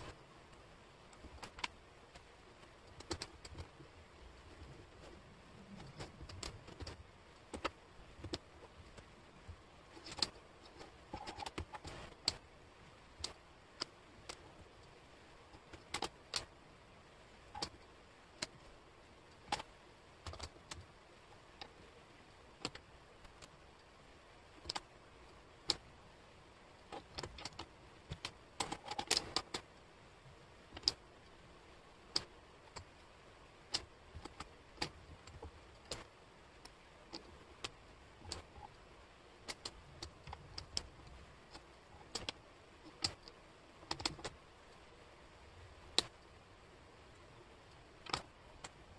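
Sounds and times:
wooden puzzle pieces clicking: 5.7 - 9.1, 9.9 - 12.4, 13.2 - 16.6, 24.5 - 25.9, 26.8 - 29.8, 30.7 - 31.0, 33.6 - 38.8, 39.4 - 44.5.

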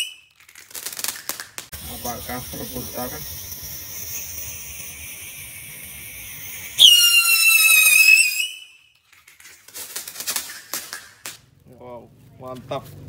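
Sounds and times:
firework whistle: 0.0 - 9.0
fireworks hissing: 0.0 - 11.6
sharp crackles: 0.0 - 13.0.

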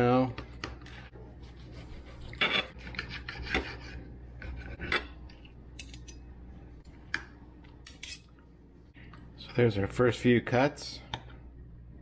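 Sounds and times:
cutlery scraping plate: 2.3 - 5.2, 7.9 - 8.3.

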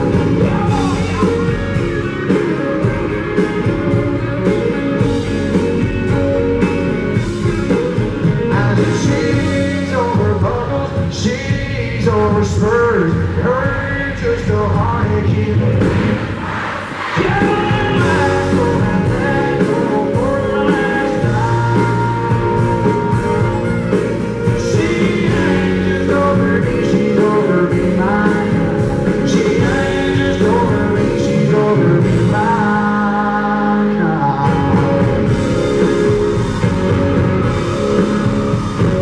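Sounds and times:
man singing: 0.0 - 1.8, 7.7 - 16.0, 17.1 - 35.8
acoustic guitar: 0.0 - 39.0
drums: 0.0 - 39.0.

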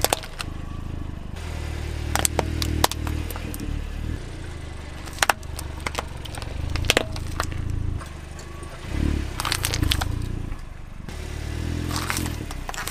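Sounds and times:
plastic cracking: 0.0 - 0.5, 5.0 - 8.6, 9.4 - 10.7, 11.9 - 12.9
car engine hum: 0.0 - 12.9
tire crushing plastic balls: 0.0 - 12.9.

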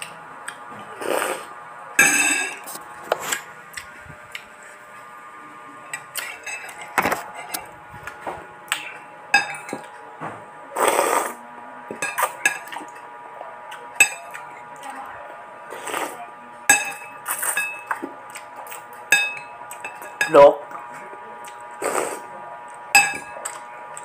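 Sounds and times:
slurping noodles: 0.9 - 1.5, 10.8 - 11.4, 21.8 - 22.3
cutlery clinking on ceramic bowl: 2.0 - 2.6, 5.9 - 7.6, 9.3 - 9.9, 11.9 - 13.0, 14.0 - 14.5, 16.7 - 18.1, 18.7 - 20.4, 23.0 - 23.6.

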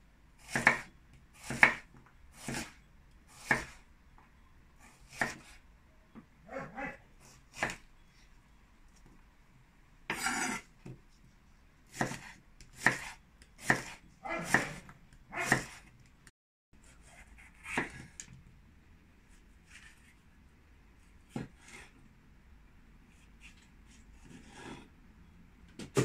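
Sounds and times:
knife chopping on cutting board: 0.5 - 1.8, 3.4 - 3.8, 5.1 - 5.5, 7.6 - 7.8, 10.1 - 11.0, 11.9 - 15.8, 17.1 - 18.1.

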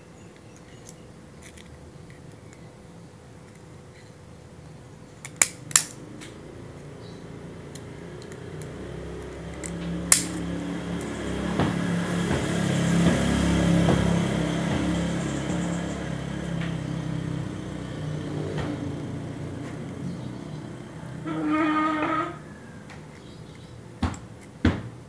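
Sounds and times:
passing motor vehicle hum: 0.0 - 25.0
sharp clicks: 5.2 - 6.4, 7.6 - 11.2.

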